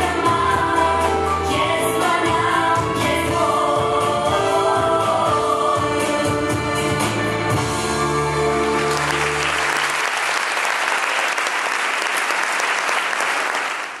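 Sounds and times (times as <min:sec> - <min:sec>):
audience applause: 0:08.6 - 0:14.0.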